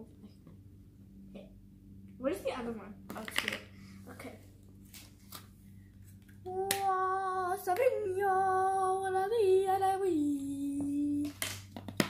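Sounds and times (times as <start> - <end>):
girl singing held notes: 6.5 - 11.3.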